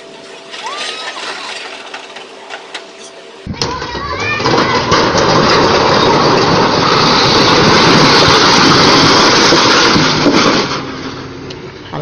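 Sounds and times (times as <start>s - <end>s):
truck crashing with collapsing earth: 0.5s - 2.8s, 3.5s - 11.4s.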